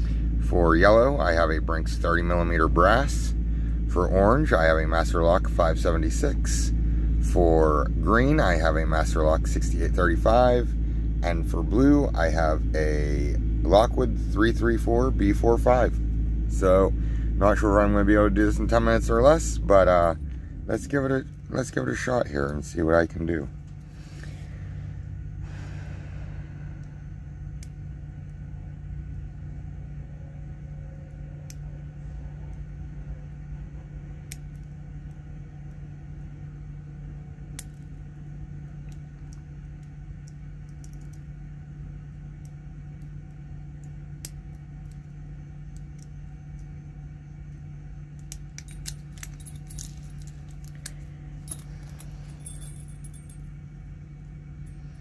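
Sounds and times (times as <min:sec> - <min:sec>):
steady low hum: 0:00.0 - 0:55.0
metal clinks: 0:48.5 - 0:53.5.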